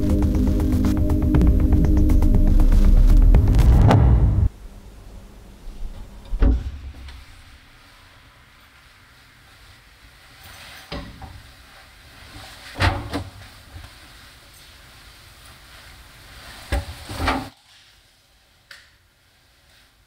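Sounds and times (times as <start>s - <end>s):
low hum: 0.0s - 7.5s.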